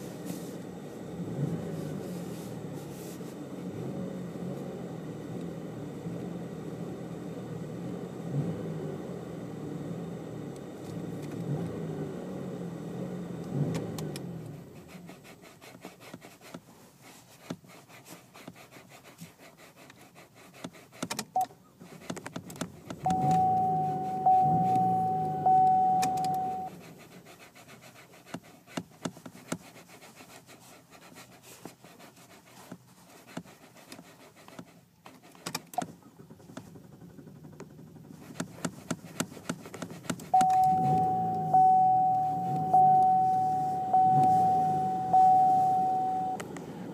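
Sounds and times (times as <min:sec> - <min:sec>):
car engine revving: 0:00.9 - 0:14.8, 0:22.6 - 0:26.9, 0:39.9 - 0:46.9
high whine: 0:23.0 - 0:26.7, 0:40.4 - 0:46.6.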